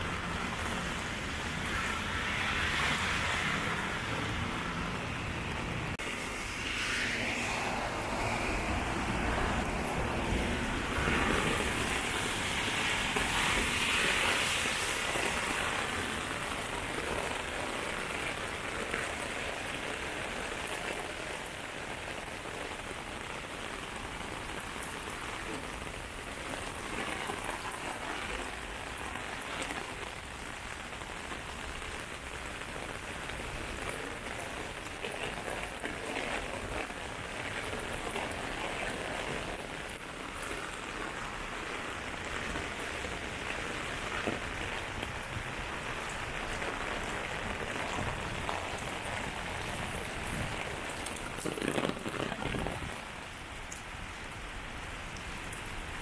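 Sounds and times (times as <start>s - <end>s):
heavy rain on pavement and umbrella: 0.0s - 56.0s
rain drop ticks: 15.0s - 56.0s.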